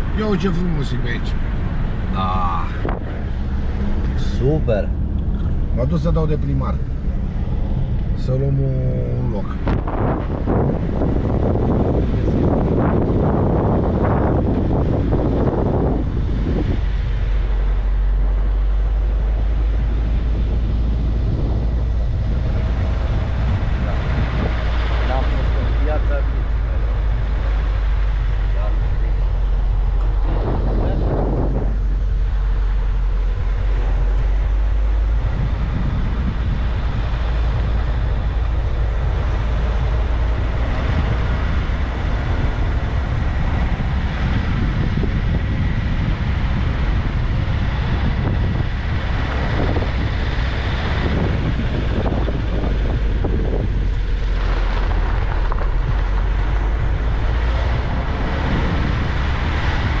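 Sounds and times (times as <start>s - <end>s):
car engine and tyres rumbling: 0.0s - 60.0s
wind buffeting microphone: 0.0s - 60.0s.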